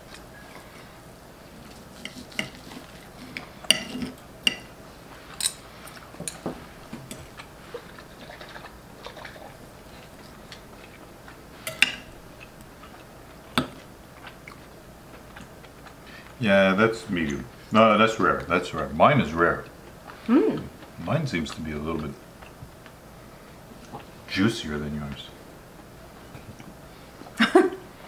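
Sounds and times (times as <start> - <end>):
cutlery scraping on ceramic plates: 1.9 - 4.7.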